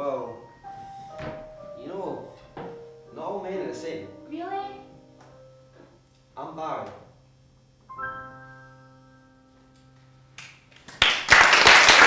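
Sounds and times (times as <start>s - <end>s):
keyboard chord ringing: 0.0s - 10.3s
audience applause: 10.8s - 12.0s.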